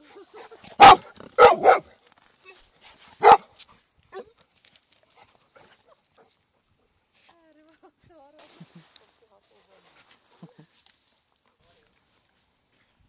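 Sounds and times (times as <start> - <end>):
dog barking: 0.8 - 1.9, 3.2 - 3.5.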